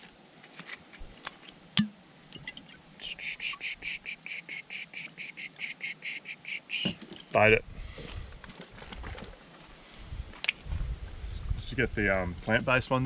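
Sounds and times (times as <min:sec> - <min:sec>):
animal chirping: 0:03.0 - 0:07.0.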